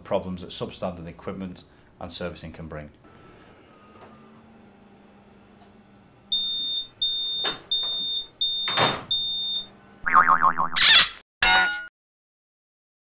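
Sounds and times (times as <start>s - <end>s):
high electronic warning beeps: 6.4s - 9.7s
wavering warbling tone: 10.1s - 11.2s.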